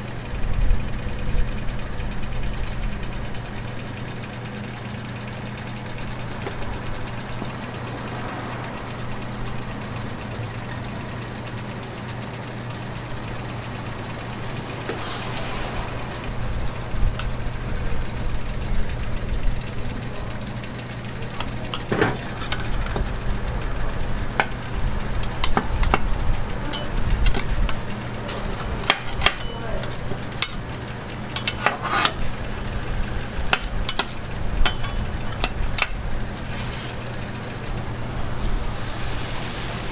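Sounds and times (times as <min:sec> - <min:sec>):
griddle sizzling: 0:01.4 - 0:20.1, 0:20.7 - 0:39.9
low hum: 0:02.3 - 0:20.3
metal utensils scraping griddle: 0:31.4 - 0:32.4, 0:36.4 - 0:37.2.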